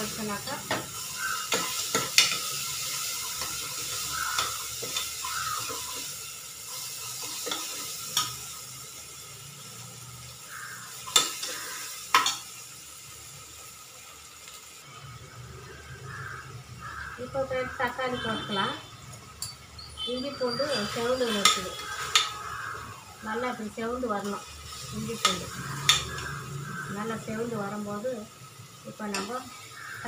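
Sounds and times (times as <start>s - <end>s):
onions sizzling in oil: 0.0s - 30.0s
spoon clicking against pan: 21.4s - 22.4s, 25.2s - 26.3s, 29.1s - 29.3s.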